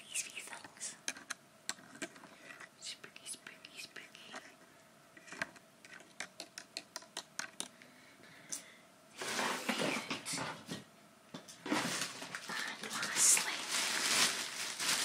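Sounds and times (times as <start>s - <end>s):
small taps and clicks: 5.3s - 7.7s
tissue paper rustling: 9.2s - 10.2s, 11.6s - 15.0s.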